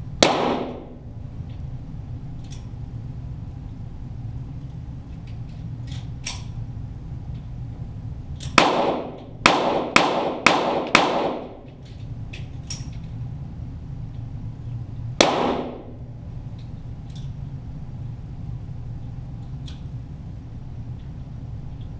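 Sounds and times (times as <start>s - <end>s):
low hum: 0.0s - 21.9s
pistol shots with echo: 0.2s - 1.0s, 8.6s - 11.6s, 15.2s - 16.0s.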